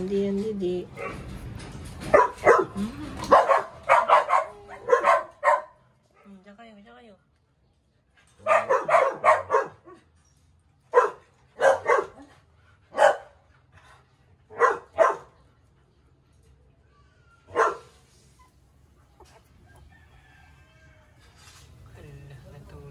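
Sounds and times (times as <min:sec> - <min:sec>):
dog barking: 0:02.1 - 0:06.3, 0:08.4 - 0:10.1, 0:10.9 - 0:12.3, 0:12.9 - 0:13.4, 0:14.5 - 0:15.4, 0:17.5 - 0:18.0.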